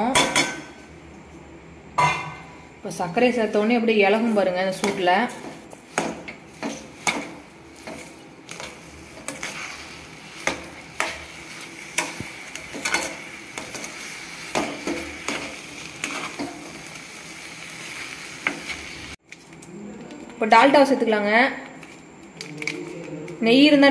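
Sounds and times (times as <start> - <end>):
metal spoon scraping pan: 4.1 - 16.8.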